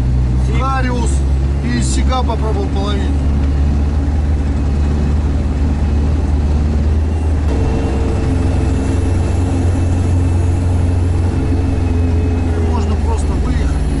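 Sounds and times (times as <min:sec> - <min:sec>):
vehicle engine humming: 0:00.0 - 0:14.0
high steady whine: 0:05.4 - 0:14.0.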